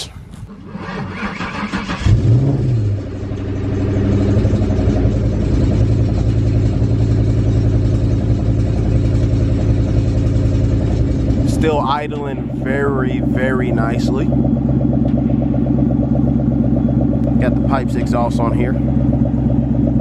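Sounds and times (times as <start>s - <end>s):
car engine revving and idling: 0.0s - 20.0s
car engine starter cranking: 0.4s - 3.6s.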